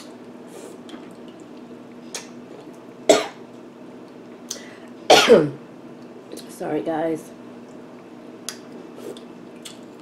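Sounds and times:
low background hum: 0.0s - 10.0s
woman coughing: 3.1s - 3.4s, 5.1s - 5.6s.

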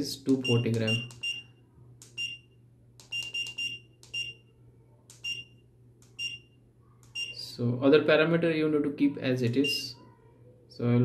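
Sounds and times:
keypad button clicks: 0.3s - 2.4s, 3.0s - 4.4s, 5.1s - 6.4s, 7.0s - 7.4s
short high beeps: 0.4s - 1.5s, 3.1s - 4.4s, 7.1s - 7.5s.

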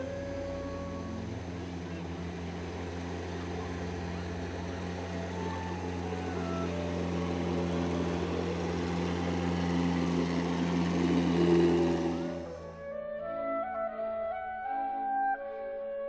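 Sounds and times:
water rushing along hull: 0.0s - 12.7s
boat engine drone: 0.0s - 16.0s.

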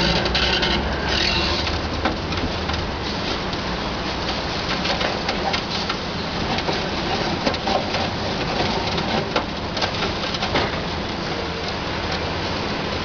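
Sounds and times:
excavator crunching concrete: 0.0s - 3.6s
rubble cracking and pattering: 1.6s - 12.2s.

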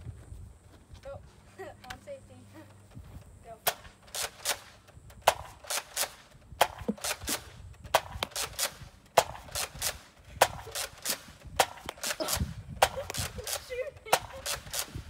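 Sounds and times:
toy blaster popping: 3.6s - 15.0s.

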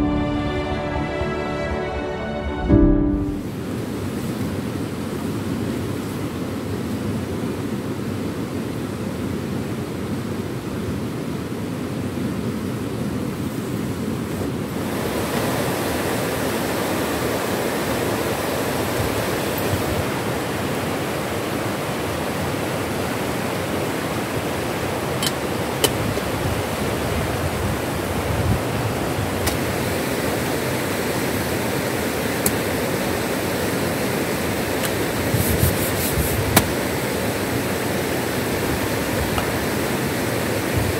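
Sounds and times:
river rapids rushing: 14.8s - 40.9s.

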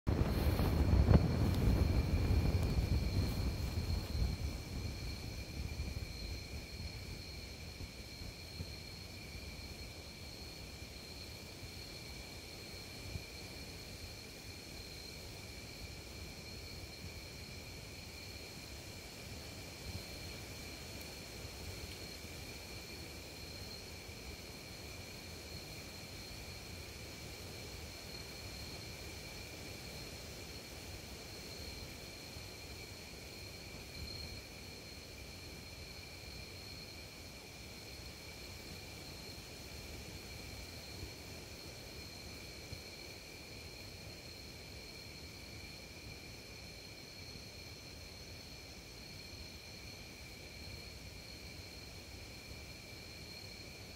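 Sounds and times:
wind rumble on microphone: 0.1s - 10.2s
insects trilling: 0.1s - 53.9s.

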